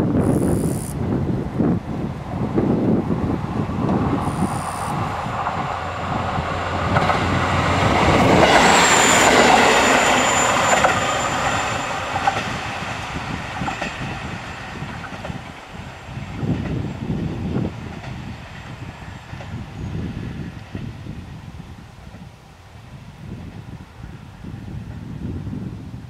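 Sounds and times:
diesel railcar passing: 1.0s - 25.4s
high wheel squeal: 4.2s - 5.0s, 8.2s - 12.3s.

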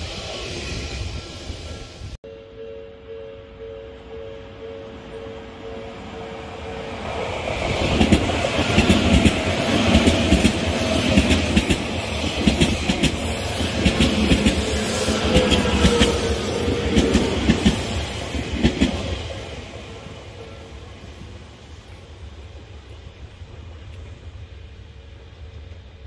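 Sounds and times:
train wheels clacking over rail joints: 7.7s - 19.3s.

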